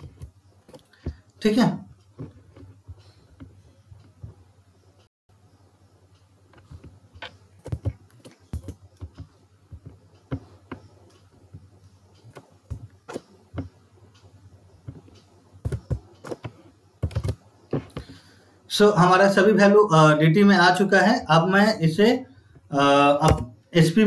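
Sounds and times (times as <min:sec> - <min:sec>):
computer keyboard typing: 0:06.7 - 0:11.2, 0:14.9 - 0:18.1.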